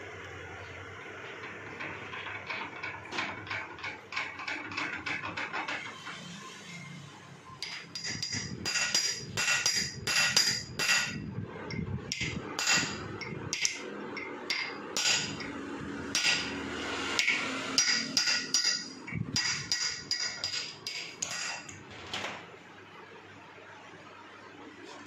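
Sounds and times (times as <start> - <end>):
hammer striking metal drift: 12.1 - 21.7.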